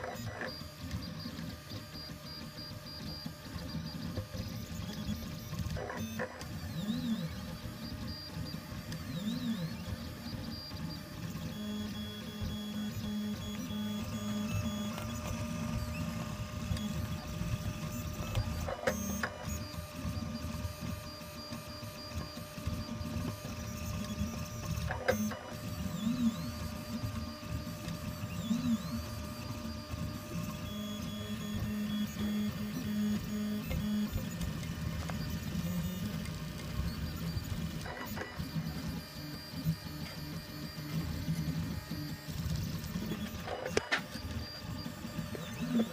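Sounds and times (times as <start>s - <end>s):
stepper motors whining: 0.0s - 45.9s.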